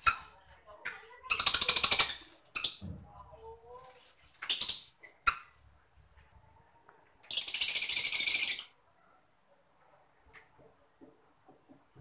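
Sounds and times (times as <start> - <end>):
lovebirds chirping and chattering: 0.0 - 3.0, 4.2 - 5.7, 7.2 - 8.8, 10.2 - 10.6.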